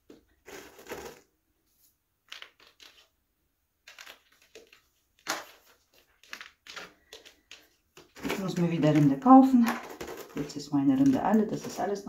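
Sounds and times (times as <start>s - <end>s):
bark chips rustling and clattering: 2.3s - 3.1s, 3.8s - 12.0s.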